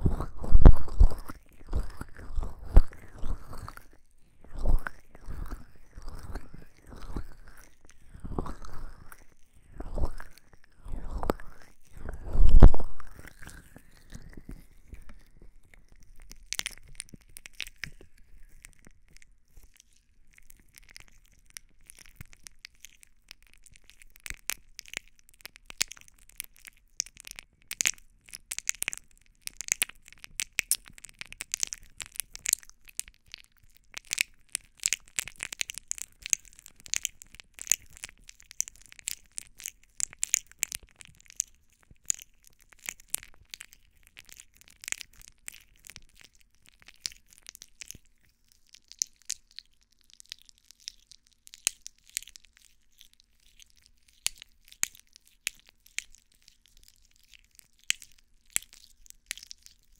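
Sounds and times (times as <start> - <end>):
fingers rubbing microphone ears: 0.0 - 3.8.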